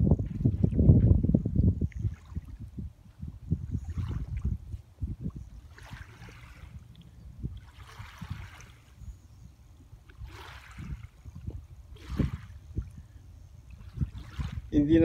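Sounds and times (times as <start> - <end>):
steady low rumble: 0.0 - 8.5
small waves lapping on sand: 1.8 - 15.0.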